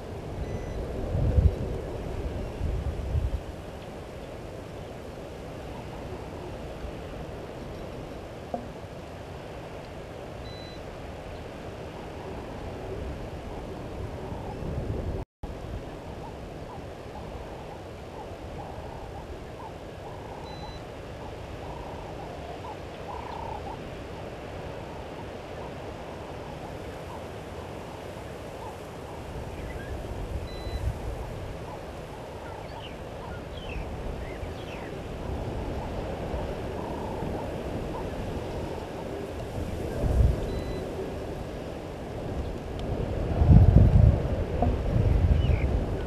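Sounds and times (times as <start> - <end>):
wind rumble on microphone: 0.0 - 46.0
faint bird calls: 16.1 - 41.7.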